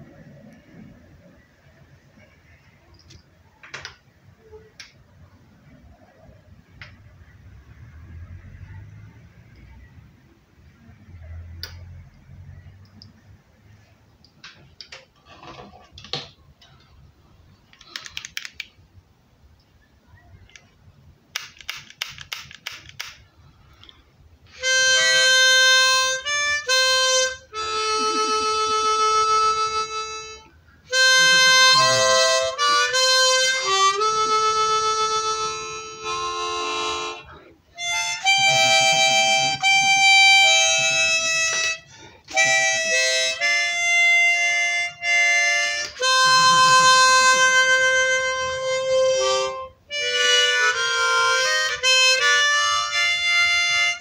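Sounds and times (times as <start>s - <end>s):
harmonica melody: 24.5s - 54.0s.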